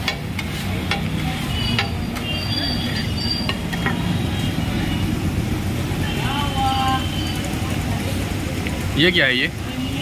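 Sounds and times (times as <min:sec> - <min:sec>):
metal spatula scraping on griddle: 0:00.0 - 0:04.1
high metallic squeal: 0:01.5 - 0:04.1.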